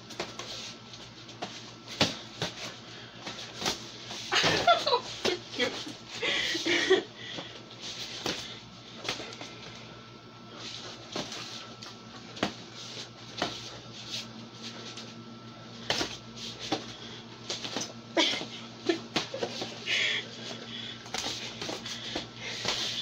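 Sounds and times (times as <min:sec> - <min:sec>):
steady low hum: 0:00.0 - 0:23.0
shuffling feet: 0:10.5 - 0:19.8, 0:20.4 - 0:23.0.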